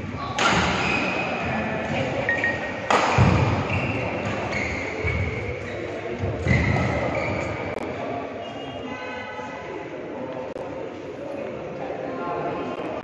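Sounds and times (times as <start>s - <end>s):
racket hitting shuttlecock: 0.3s - 0.9s, 2.8s - 4.5s
shoes squeaking on court floor: 0.8s - 7.8s.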